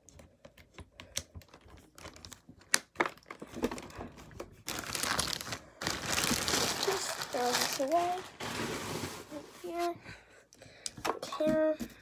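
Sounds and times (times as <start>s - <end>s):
crumpling crinkling: 1.4s - 9.4s.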